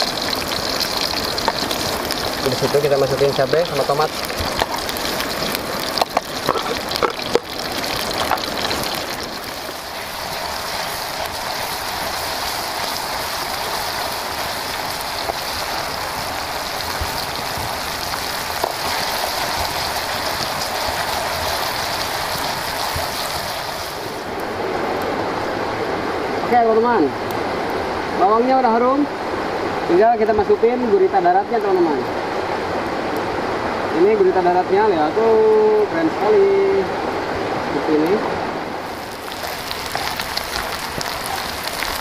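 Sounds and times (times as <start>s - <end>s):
vegetables sizzling in hot oil: 0.0s - 24.3s, 38.8s - 42.0s.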